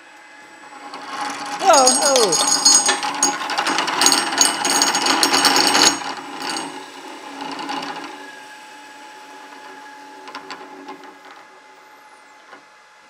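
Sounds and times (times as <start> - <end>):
grinder mechanical clatter: 0.7 - 8.0.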